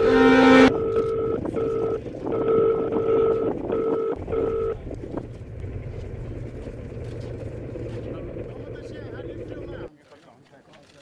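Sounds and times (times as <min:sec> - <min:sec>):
stuttering electronic tone: 0:00.0 - 0:04.8
low rumbling noise drone: 0:00.0 - 0:09.9.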